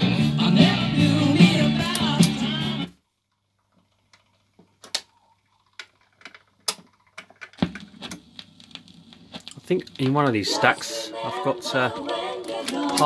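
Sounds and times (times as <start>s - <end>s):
rock and roll record playing: 0.0s - 3.0s, 7.6s - 13.0s
record changer clicks and clunks: 1.8s - 2.6s, 12.0s - 13.0s.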